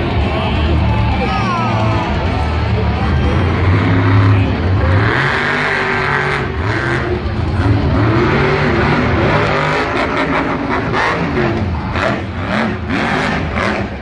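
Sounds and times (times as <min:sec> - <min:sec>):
monster truck engine revving: 0:00.0 - 0:14.0.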